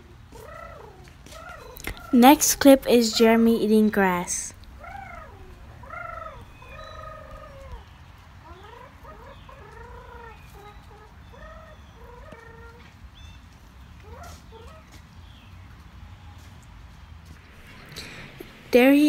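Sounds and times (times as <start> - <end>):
rising and falling bird calls: 4.5 - 13.4, 17.4 - 19.0.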